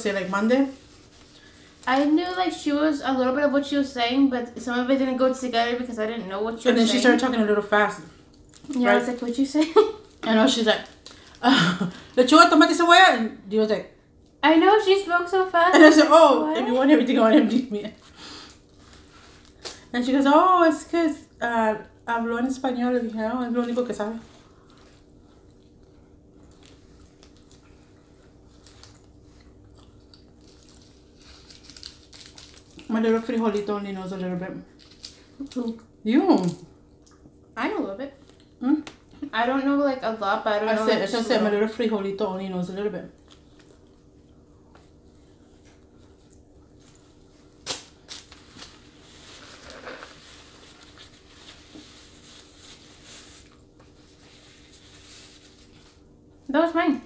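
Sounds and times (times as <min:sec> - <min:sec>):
low steady hum: 0:00.0 - 0:57.0
paper rustling and crumpling: 0:47.6 - 0:56.1.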